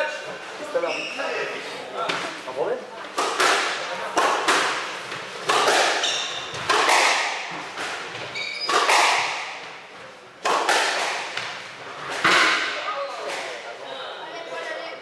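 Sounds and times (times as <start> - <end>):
shoes squeaking on wooden floor: 0.6 - 1.6, 6.0 - 6.7, 8.0 - 9.0
squash ball knocking: 3.1 - 9.8, 10.4 - 13.6.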